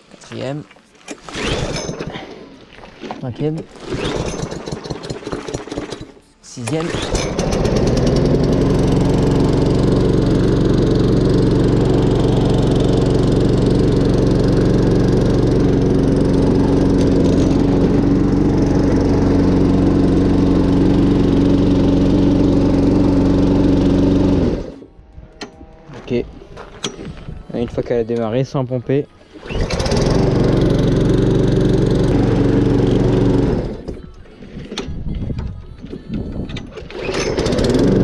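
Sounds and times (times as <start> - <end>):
lawn mower engine running: 1.2 - 25.7, 29.3 - 34.9, 36.7 - 38.0.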